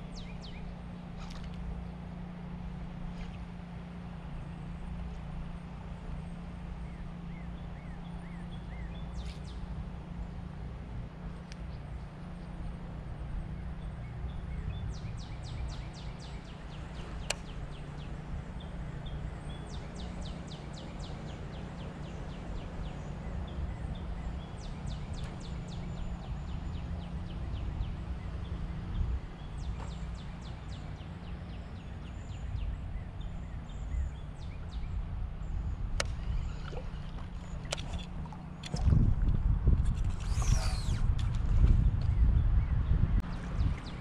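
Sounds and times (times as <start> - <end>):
wind buffeting microphone: 22.8 - 44.0.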